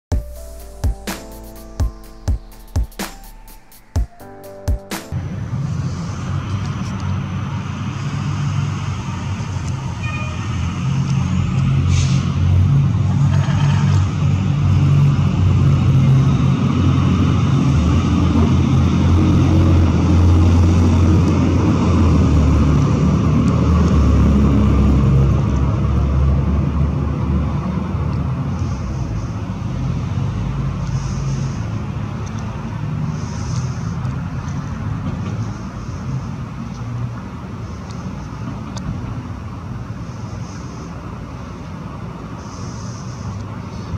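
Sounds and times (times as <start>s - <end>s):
vehicle engine rumble: 5.1s - 43.9s.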